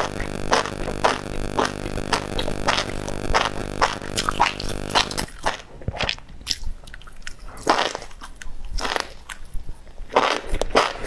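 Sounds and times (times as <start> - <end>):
wet biting and chewing: 3.4 - 11.0.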